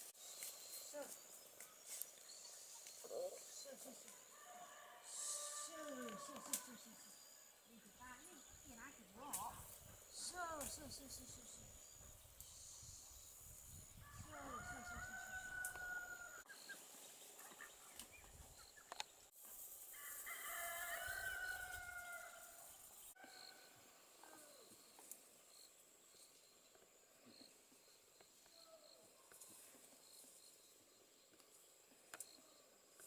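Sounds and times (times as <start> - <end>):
rooster crowing: 14.1 - 16.4, 19.9 - 22.6.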